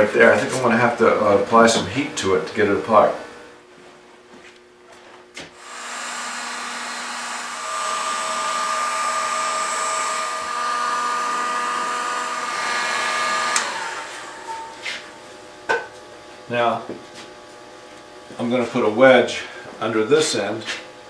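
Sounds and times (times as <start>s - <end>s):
heat gun blowing air: 5.6s - 15.2s.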